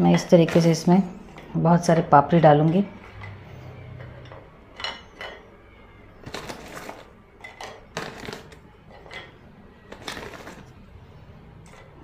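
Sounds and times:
crisp wafers clicking on a plate: 9.9s - 10.6s.

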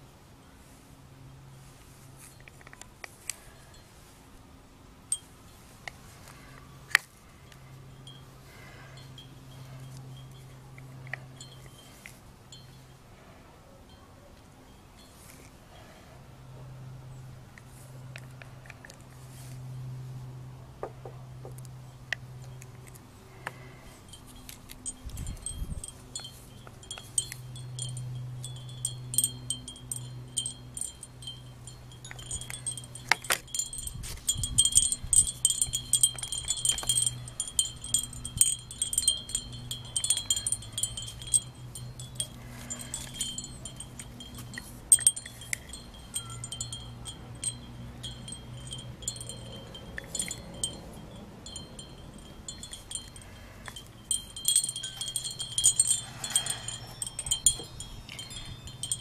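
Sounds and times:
low steady hum: 0.0s - 59.0s
wind chimes ringing: 7.4s - 16.2s, 21.5s - 59.0s.

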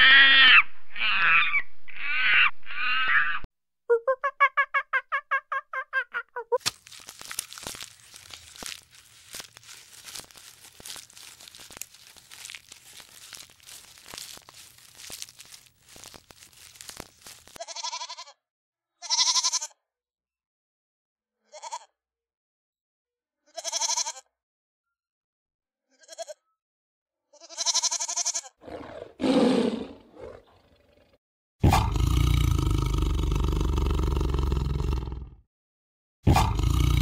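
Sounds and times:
dense crackling crunching noise: 6.6s - 17.6s, 36.8s - 37.0s
animal bleating calls: 8.0s - 18.2s, 19.0s - 19.7s, 23.6s - 24.2s, 27.4s - 30.3s.

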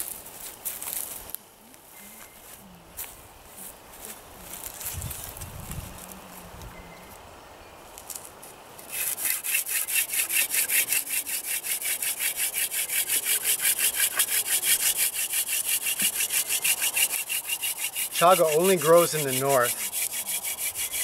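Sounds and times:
wooden spindle grinding rhythmically: 8.9s - 21.0s.

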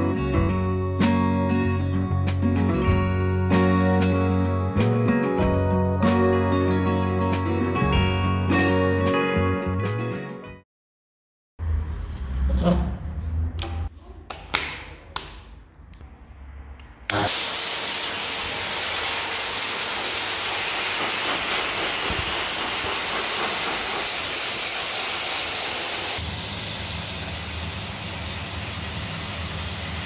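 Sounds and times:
pet dryer blowing air: 17.1s - 30.0s.

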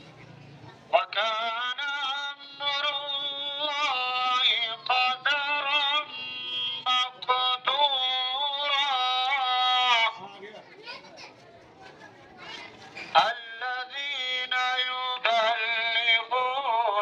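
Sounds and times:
man chanting over loudspeaker: 0.9s - 10.4s, 13.2s - 17.0s.

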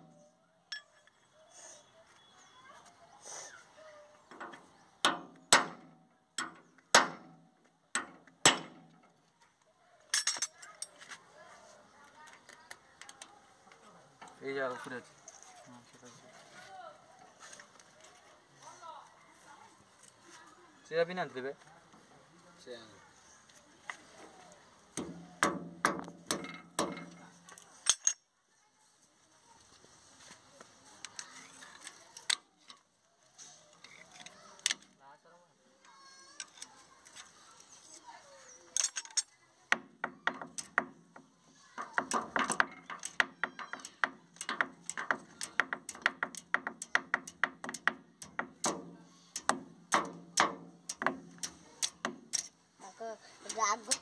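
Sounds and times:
hammer striking metal: 5.1s - 7.4s, 25.0s - 27.2s, 42.0s - 52.5s
steel rod clanking on metal hub: 41.8s - 52.5s
hand tools clicking on metal: 41.8s - 52.6s, 53.5s - 54.0s.

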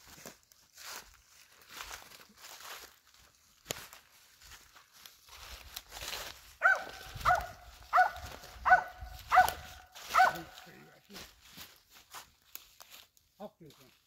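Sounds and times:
rustling in dry leaves: 0.0s - 14.0s
dog barking: 6.6s - 10.6s.

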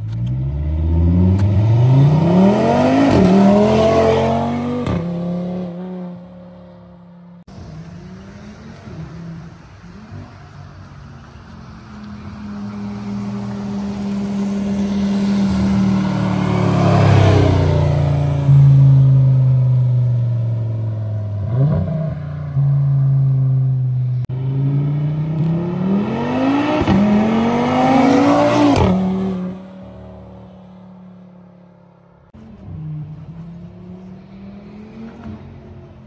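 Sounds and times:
car engine accelerating past: 7.5s - 20.2s, 21.2s - 30.5s.

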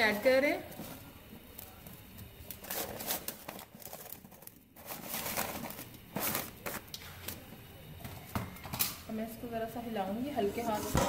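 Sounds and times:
newspaper crinkling and rustling: 2.5s - 7.0s.

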